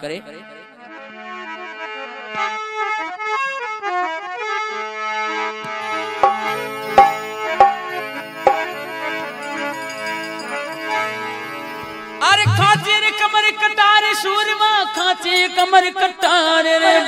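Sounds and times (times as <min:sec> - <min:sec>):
harmonium playing folk melody: 0:00.1 - 0:17.0
sharp percussion strokes: 0:06.2 - 0:13.0.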